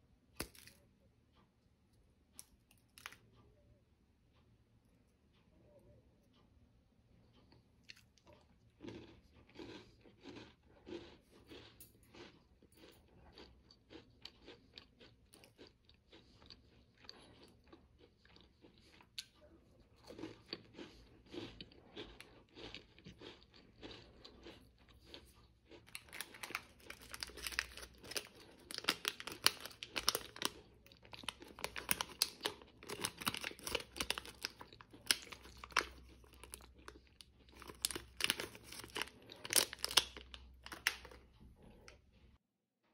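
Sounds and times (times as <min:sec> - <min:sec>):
crunchy biscuit chewing: 0:00.4 - 0:00.8, 0:07.2 - 0:42.4
plastic snack wrapper crinkling: 0:23.2 - 0:41.3.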